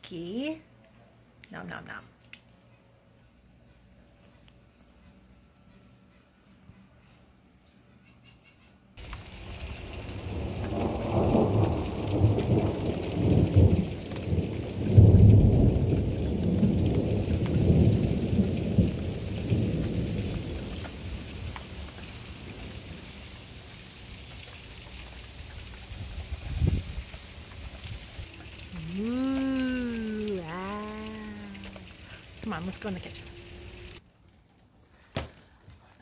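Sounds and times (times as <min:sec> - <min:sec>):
thunder rumbling: 0:09.0 - 0:34.0
rain hissing: 0:09.0 - 0:34.1.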